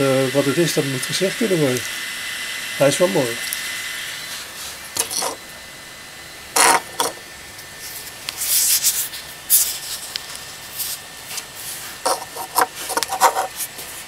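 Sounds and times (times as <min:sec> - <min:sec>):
figurine rubbing and scraping: 0:04.3 - 0:05.4, 0:06.6 - 0:07.2, 0:07.8 - 0:14.0.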